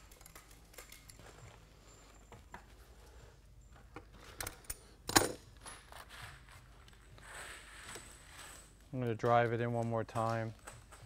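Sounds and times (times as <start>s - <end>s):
pliers clicking and creaking: 3.9s - 6.0s.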